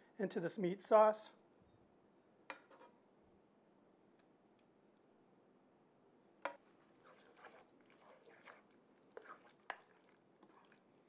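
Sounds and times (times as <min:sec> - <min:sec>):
wooden spoon stirring thick sauce: 0:06.5 - 0:11.0.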